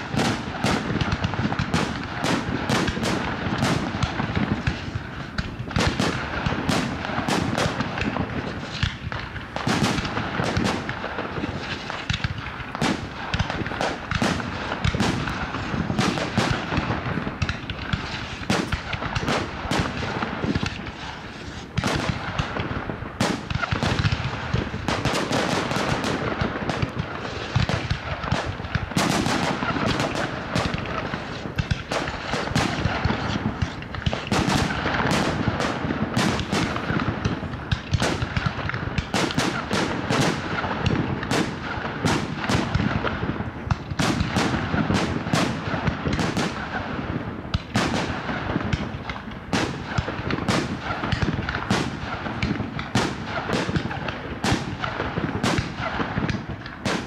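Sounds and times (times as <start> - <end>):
fireworks bangs: 0.0 - 57.0
fireworks crackling: 0.0 - 57.0.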